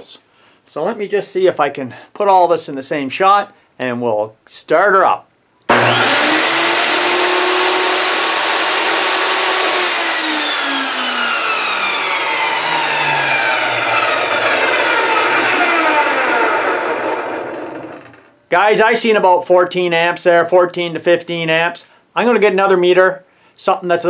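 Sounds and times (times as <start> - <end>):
table saw whining and winding down: 5.7 - 18.3.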